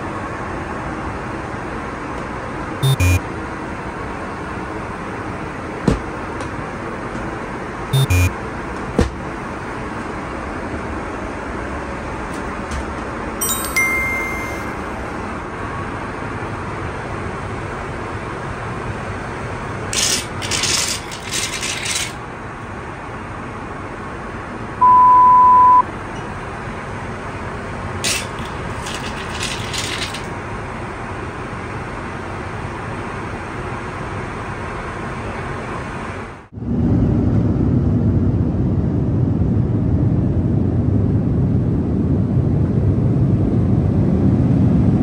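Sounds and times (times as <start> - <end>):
airplane cabin noise: 0.0 - 31.8
single beep: 2.8 - 3.2, 8.0 - 8.3, 13.4 - 15.1, 24.8 - 25.9.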